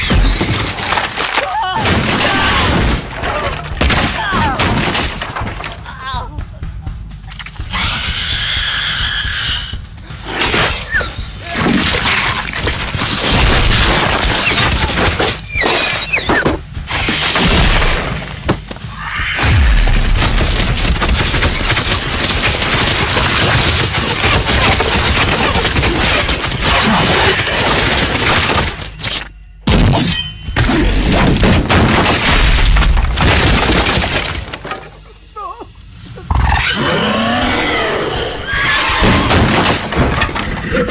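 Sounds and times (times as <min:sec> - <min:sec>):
crashing and smashing impacts: 0:00.0 - 0:06.0, 0:10.2 - 0:35.0, 0:39.0 - 0:40.9
dramatic music: 0:03.0 - 0:31.6.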